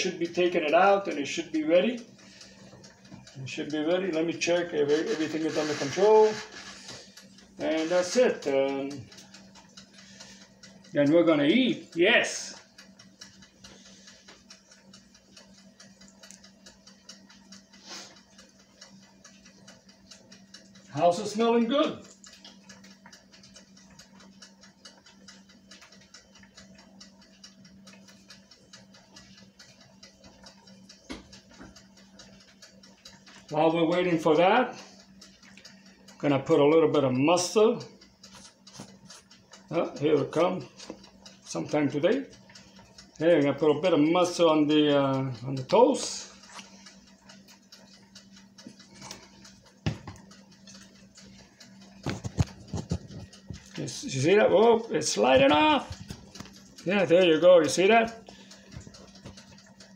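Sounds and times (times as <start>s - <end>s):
mechanical timer ticking: 0.0s - 59.9s
dishes clicking and knocking: 49.8s - 50.2s.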